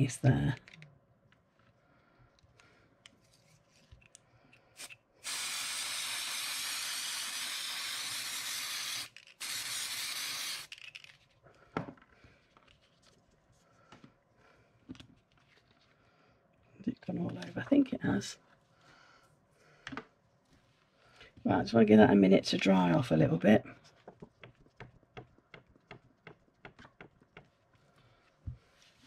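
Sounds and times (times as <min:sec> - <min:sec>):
aerosol spray hissing: 0:04.8 - 0:10.7.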